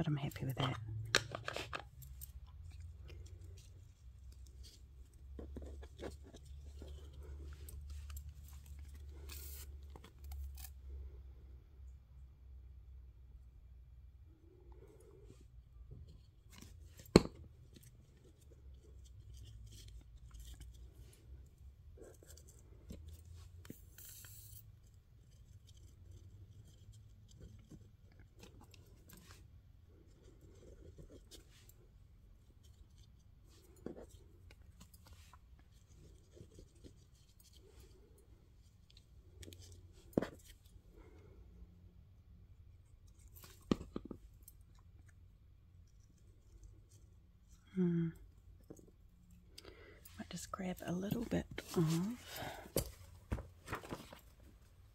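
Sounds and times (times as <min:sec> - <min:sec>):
paper rustling: 0:51.2 - 0:54.6.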